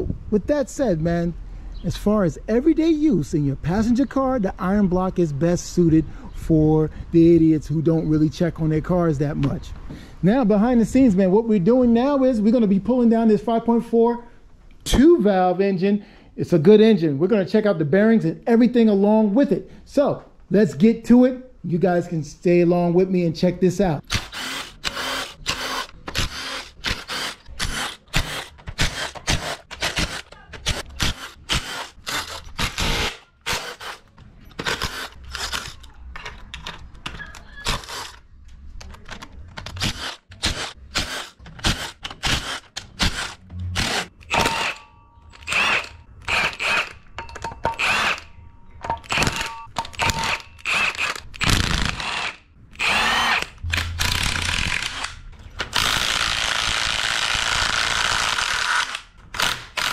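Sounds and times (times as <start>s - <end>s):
impact wrench hammering: 24.1s - 34.0s, 39.8s - 48.2s, 48.8s - 59.9s
cordless driver spinning bolts: 24.1s - 35.8s, 39.6s - 44.8s, 45.4s - 48.3s, 49.0s - 59.9s.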